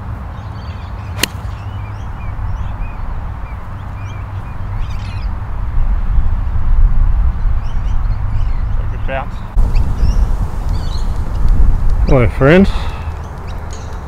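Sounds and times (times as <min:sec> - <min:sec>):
low wind rumble: 0:00.0 - 0:14.0
golf club striking ball: 0:01.2 - 0:01.7.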